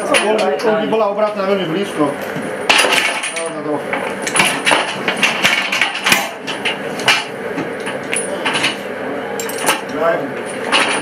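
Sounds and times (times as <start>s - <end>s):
sharp metallic clanks and knocks: 2.7s - 8.8s, 9.4s - 11.0s.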